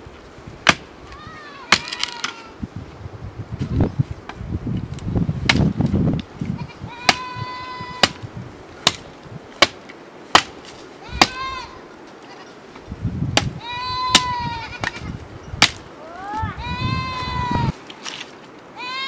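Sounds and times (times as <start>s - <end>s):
brushwood rustling: 0.0s - 18.9s
sickle chopping branch: 0.6s - 2.4s, 3.6s - 6.3s, 7.1s - 7.3s, 8.0s - 11.4s, 13.3s - 15.0s, 15.6s - 16.4s.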